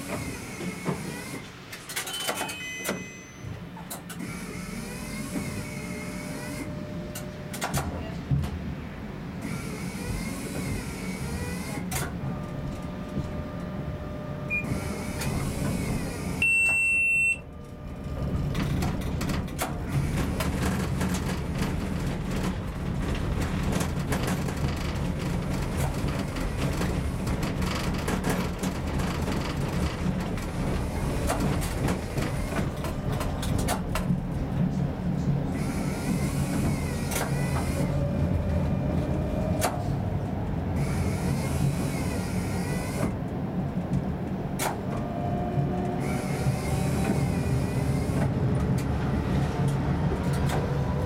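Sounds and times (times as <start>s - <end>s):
tram rumbling: 0.0s - 51.0s
loud electronic beep: 14.5s - 14.8s, 16.4s - 17.4s
wheels clattering over rail joints: 17.6s - 40.5s.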